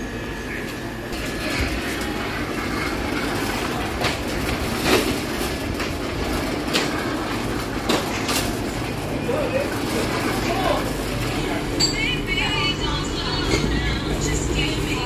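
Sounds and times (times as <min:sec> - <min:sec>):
shopping cart clanks: 0:01.2 - 0:15.0
shopping cart rattling on tiles: 0:01.2 - 0:15.0.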